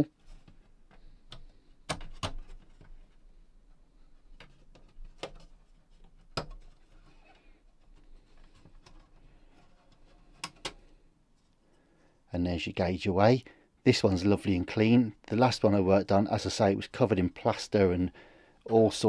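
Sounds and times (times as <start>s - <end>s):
plastic handling: 0.2s - 11.6s.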